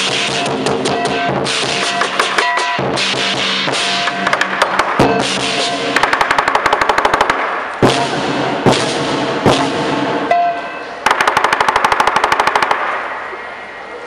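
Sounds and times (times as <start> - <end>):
cymbals crashing: 0.0 - 6.0, 7.6 - 11.0
drum roll: 0.0 - 10.4.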